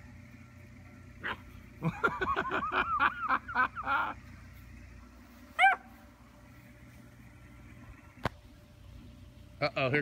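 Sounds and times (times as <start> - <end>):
puppies yipping: 1.2 - 1.6, 5.5 - 6.1
puppy yelp: 5.6 - 6.0.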